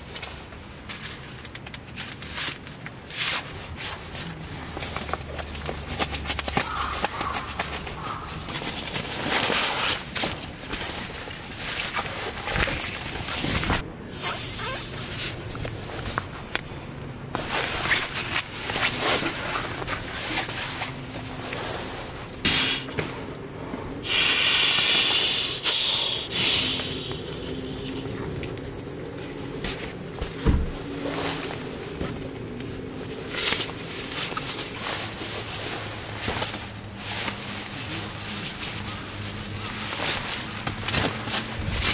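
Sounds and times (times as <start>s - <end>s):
nylon rustling and swishing: 17.3s - 22.5s, 27.6s - 41.9s.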